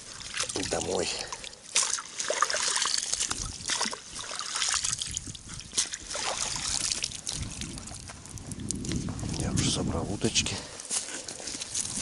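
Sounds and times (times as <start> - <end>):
water dripping from net: 0.0 - 9.0
water splashing and trickling: 0.0 - 9.8.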